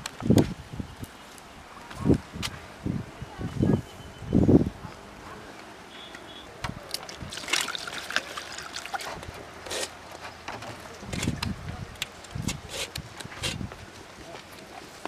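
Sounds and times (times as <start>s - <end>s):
water pouring into plastic bowl: 6.9s - 9.2s.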